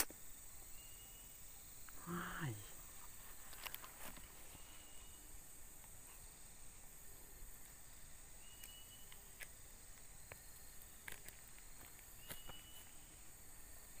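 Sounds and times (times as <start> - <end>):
insects droning: 0.0 - 14.0
short thin whistles: 8.4 - 9.2, 12.2 - 13.0.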